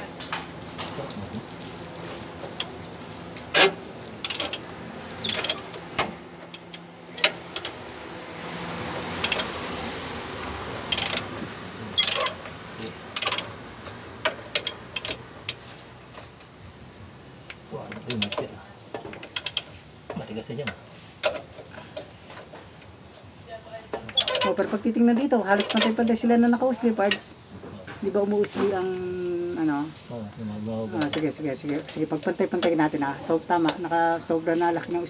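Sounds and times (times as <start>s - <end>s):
ratchet wrench clicking: 3.6s - 4.6s, 5.2s - 5.7s, 9.2s - 9.5s, 10.9s - 11.3s, 12.0s - 12.4s, 13.1s - 13.6s, 14.2s - 15.7s, 17.9s - 18.5s, 19.2s - 19.7s.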